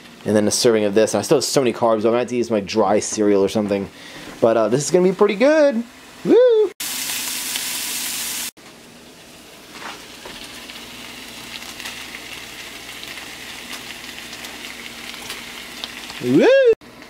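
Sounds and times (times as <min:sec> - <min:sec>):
food sizzling in a frying pan: 0:05.3 - 0:17.0.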